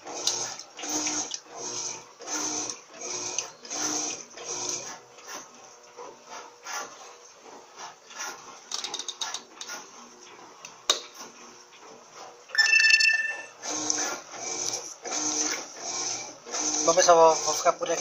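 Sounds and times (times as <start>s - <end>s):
loud steady tone: 12.6s - 13.6s.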